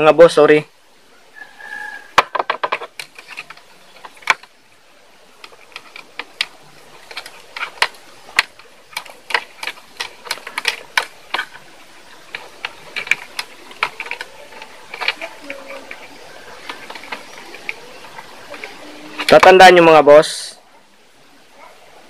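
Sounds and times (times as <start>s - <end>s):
insulation rubbing: 1.3s - 19.9s
wires clicking and crackling: 2.2s - 4.6s, 5.2s - 19.9s.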